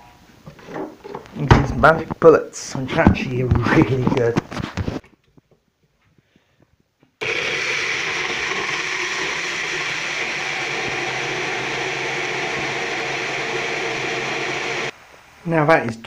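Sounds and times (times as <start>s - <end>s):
blender running: 7.2s - 14.9s.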